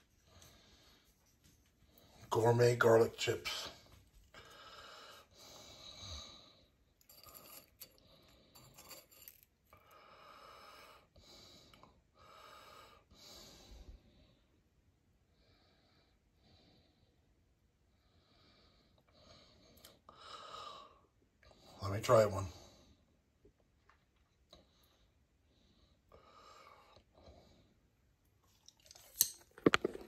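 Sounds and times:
soft breathing: 0:00.0 - 0:02.3, 0:03.8 - 0:09.1, 0:09.7 - 0:14.7.

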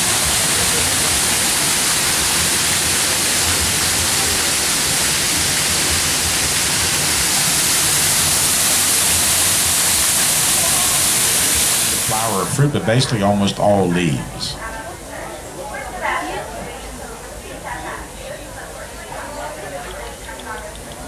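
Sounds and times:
waterfall rushing: 0:00.0 - 0:14.6.

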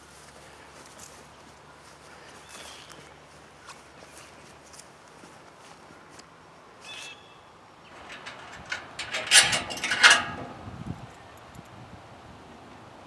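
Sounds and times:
steel parts clanking and rattling: 0:07.9 - 0:10.8.

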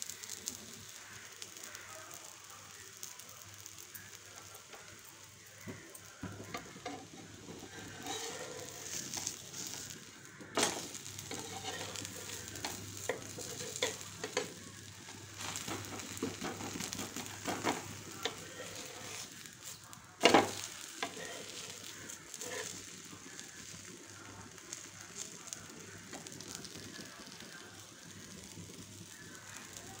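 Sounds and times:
batter sizzling on griddle: 0:00.0 - 0:30.0
steel spatula clicks and scrapes: 0:06.5 - 0:10.0, 0:10.6 - 0:14.6, 0:15.4 - 0:22.9.

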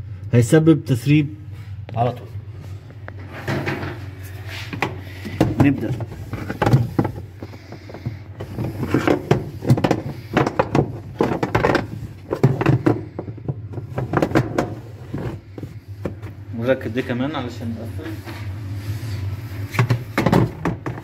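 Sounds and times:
plastic knocks and clatter: 0:04.8 - 0:16.4, 0:19.7 - 0:21.0.

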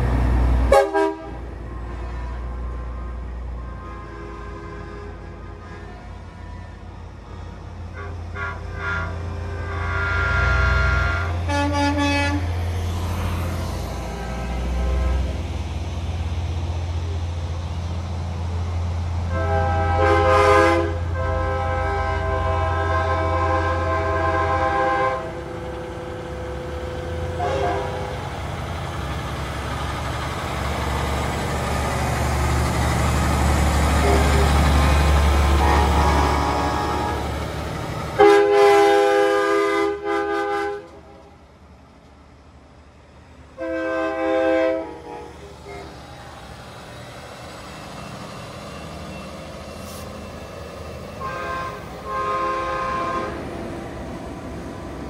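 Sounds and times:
diesel truck engine rumble: 0:00.0 - 0:55.0
truck air horn blasts: 0:00.7 - 0:01.4, 0:03.6 - 0:06.0, 0:07.9 - 0:12.5, 0:19.3 - 0:25.5, 0:27.3 - 0:28.2, 0:34.0 - 0:34.7, 0:35.4 - 0:37.5, 0:38.2 - 0:41.1, 0:43.6 - 0:46.0, 0:51.2 - 0:53.5.

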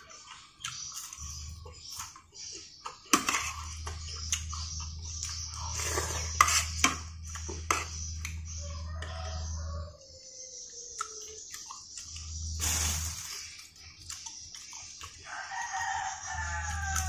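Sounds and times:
chewing: 0:00.1 - 0:06.3, 0:10.9 - 0:12.4, 0:13.6 - 0:16.0
metal spoon scraping a plate: 0:03.0 - 0:04.0, 0:05.5 - 0:08.3.

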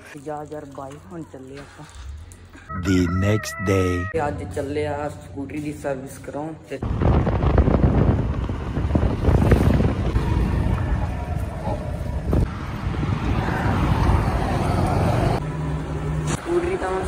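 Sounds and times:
wind buffeting microphone: 0:06.8 - 0:15.4.

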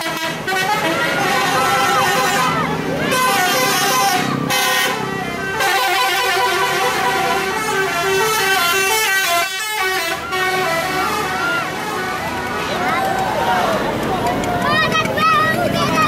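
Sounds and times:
multi-tone air horn tune: 0:00.0 - 0:12.7.

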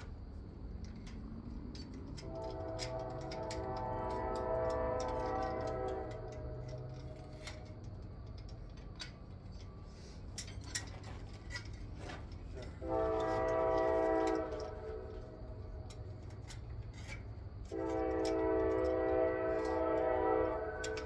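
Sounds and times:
horn blast: 0:02.2 - 0:06.4, 0:12.6 - 0:15.1, 0:17.7 - 0:21.0.

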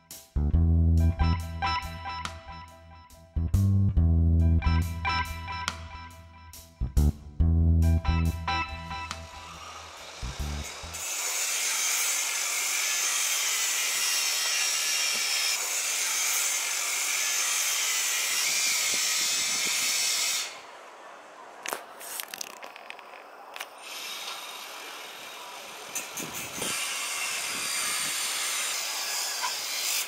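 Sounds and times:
metal grinder grinding steel: 0:09.2 - 0:20.6, 0:23.8 - 0:30.0.

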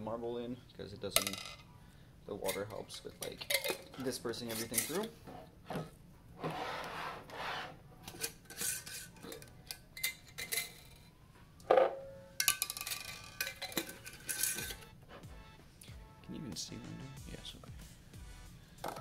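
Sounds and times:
glass jar scraping: 0:04.4 - 0:05.0.

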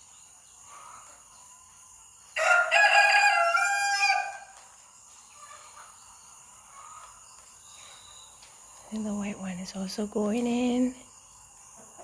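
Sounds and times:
rooster crowing: 0:02.4 - 0:04.6.

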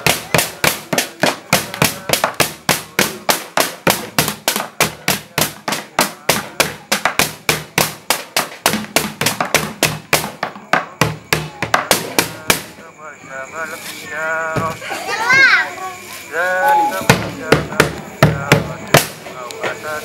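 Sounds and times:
children beating makeshift drums: 0:00.0 - 0:12.9, 0:14.0 - 0:20.0.

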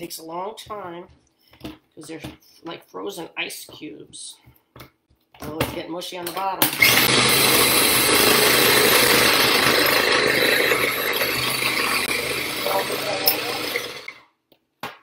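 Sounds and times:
electric food chopper running: 0:06.6 - 0:14.2
blades chopping frozen chunks: 0:06.8 - 0:14.2.

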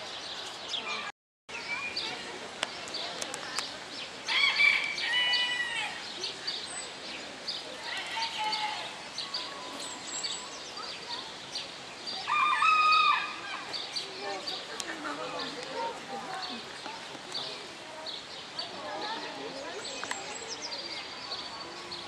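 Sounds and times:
small birds chirping: 0:00.0 - 0:22.0
loud held bird calls: 0:04.0 - 0:14.6.

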